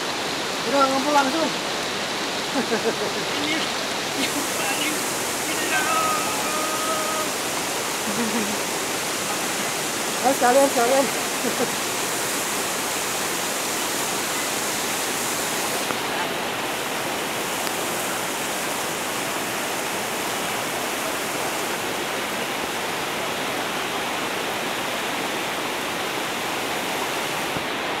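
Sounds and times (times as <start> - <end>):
river rushing over boulders: 0.0 - 28.0.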